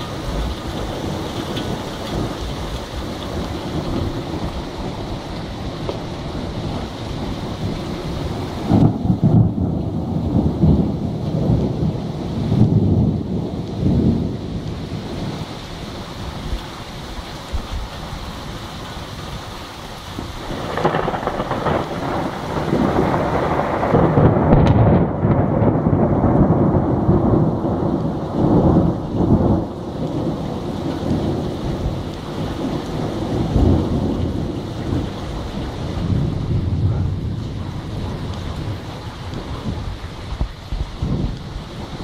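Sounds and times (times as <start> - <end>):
thunder rolling: 0.0 - 15.6, 20.2 - 42.0
steady rain: 0.0 - 42.0.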